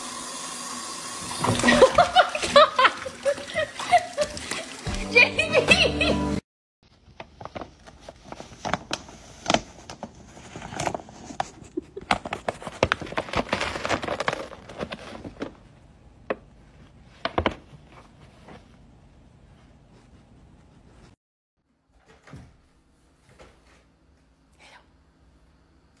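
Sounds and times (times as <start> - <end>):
paper bag crackling and rustling: 6.9 - 15.8.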